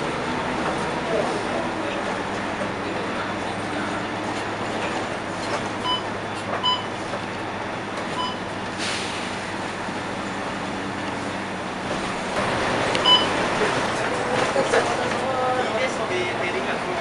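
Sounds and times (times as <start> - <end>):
bus diesel engine rumble: 0.0 - 17.0.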